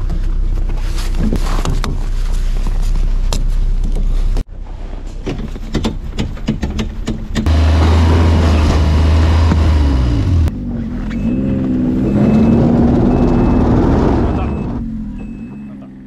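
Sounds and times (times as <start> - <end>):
snowmobile engine droning: 7.4 - 16.0
snowmobile engine revving: 7.4 - 16.0.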